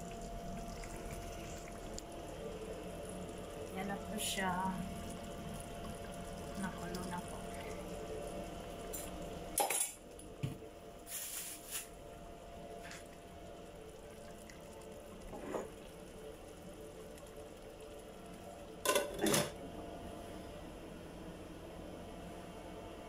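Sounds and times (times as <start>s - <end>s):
steady low hum: 0.0s - 23.0s
lid clanking on pot: 18.8s - 19.6s.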